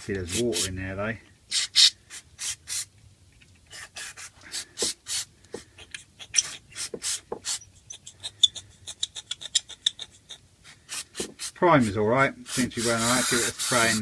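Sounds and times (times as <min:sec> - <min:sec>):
aerosol spray squirts: 0:10.9 - 0:11.6, 0:12.5 - 0:14.0.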